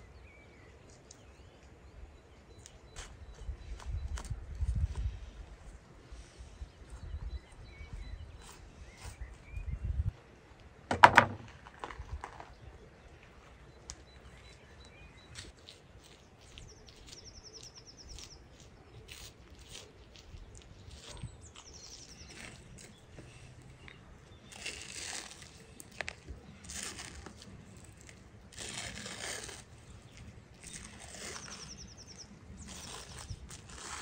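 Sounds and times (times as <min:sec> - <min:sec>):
loud knock: 0:10.9 - 0:11.5.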